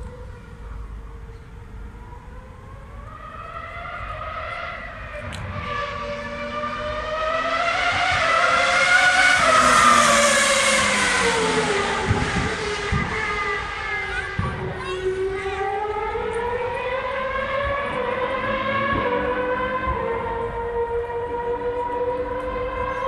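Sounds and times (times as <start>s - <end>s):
racing car engine revving: 3.0s - 23.0s.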